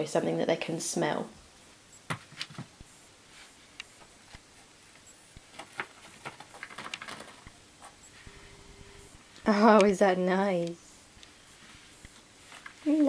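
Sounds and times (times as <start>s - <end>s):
paper crinkling and rustling: 5.4s - 7.5s.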